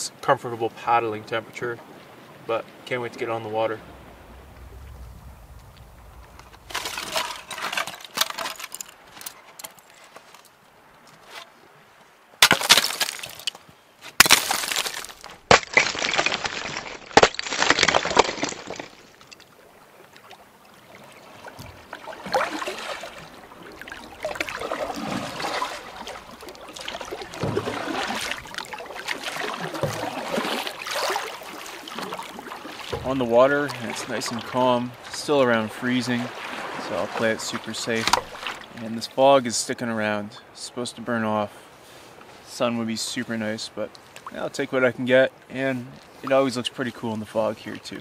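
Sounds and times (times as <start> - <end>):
low swishes: 3.6 - 7.6.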